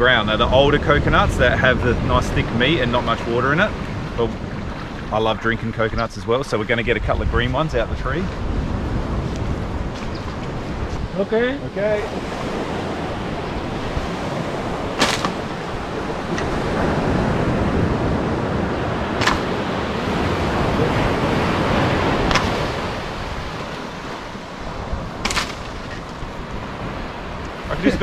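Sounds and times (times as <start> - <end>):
surf: 0.0 - 28.0
wind: 0.0 - 28.0
pole knocking coconuts: 14.8 - 16.6, 19.2 - 20.1, 21.8 - 24.2, 25.2 - 26.4.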